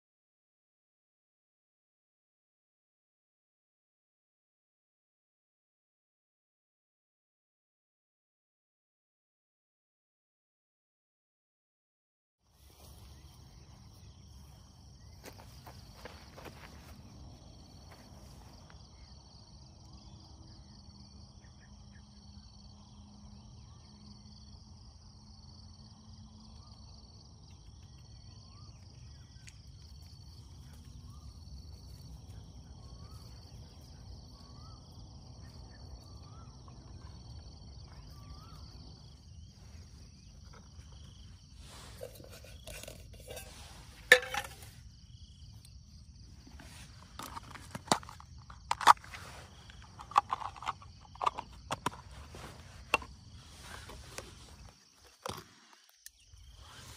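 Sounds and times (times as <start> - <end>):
high-pitched insect chorus: 12.6 - 56.9
camping cookware clattering: 41.6 - 44.8, 46.7 - 53.9.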